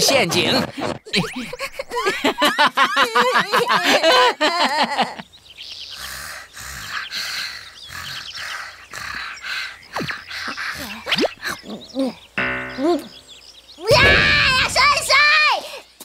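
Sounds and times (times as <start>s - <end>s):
birds chirping: 0.0s - 2.6s, 4.6s - 16.0s
wobbling cartoon sound: 12.4s - 13.2s.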